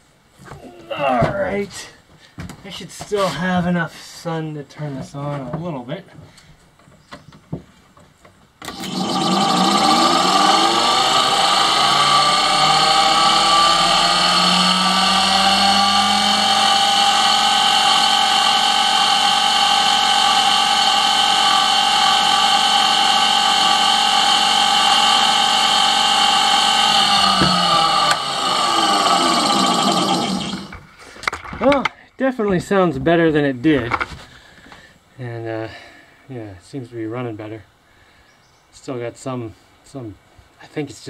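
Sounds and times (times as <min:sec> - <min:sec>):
electric motor whining: 0:08.6 - 0:30.9.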